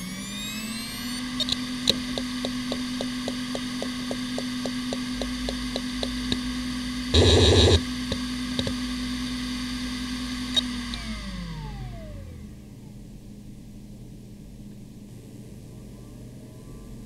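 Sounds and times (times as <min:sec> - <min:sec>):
hard drive spinning whine: 0:00.0 - 0:13.2
hard drive ticking: 0:01.4 - 0:08.9
loud buzz: 0:06.8 - 0:11.2
hard drive click: 0:07.2 - 0:08.8.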